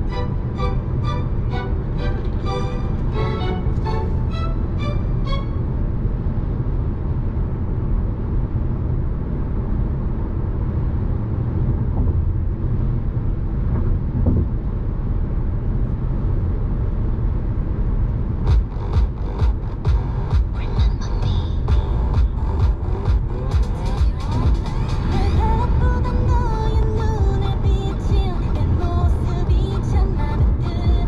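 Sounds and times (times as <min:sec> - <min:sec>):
music: 0:00.0 - 0:05.9, 0:18.4 - 0:31.0
car engine and tyre road noise: 0:00.0 - 0:31.0.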